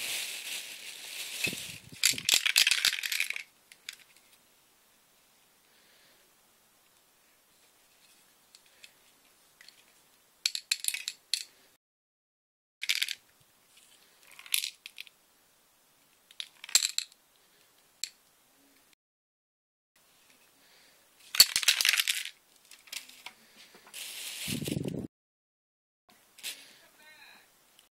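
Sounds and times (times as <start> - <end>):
spray can rattling: 1.3 - 4.2.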